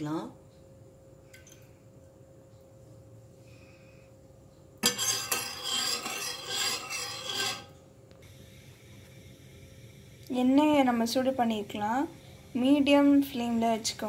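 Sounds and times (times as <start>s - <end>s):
metal spoon scraping saucepan: 4.8s - 7.8s.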